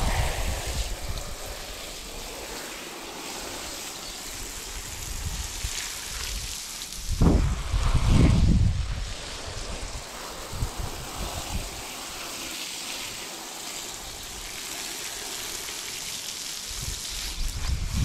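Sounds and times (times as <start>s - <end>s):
wind rumble on microphone: 0.0s - 2.8s, 4.3s - 12.2s, 16.8s - 18.0s
hose water spraying and splashing: 0.0s - 18.0s.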